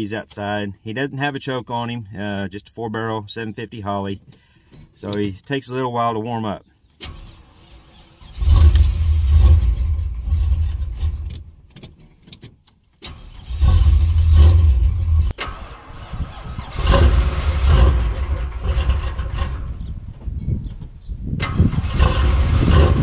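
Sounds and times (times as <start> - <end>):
engine cold-starting and surging: 7.0 - 11.5, 13.0 - 20.2, 21.4 - 23.0.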